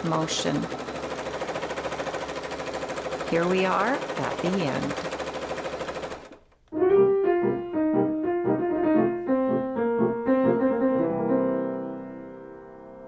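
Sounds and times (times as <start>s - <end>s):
piano melody: 6.7s - 13.0s.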